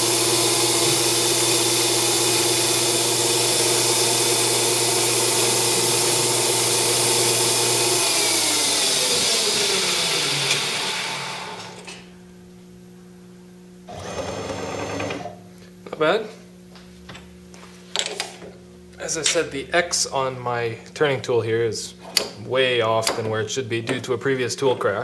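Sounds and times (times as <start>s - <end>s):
lathe spindle whining: 0.0s - 11.9s, 13.9s - 15.3s
lathe winding down: 0.0s - 11.9s, 13.9s - 15.3s.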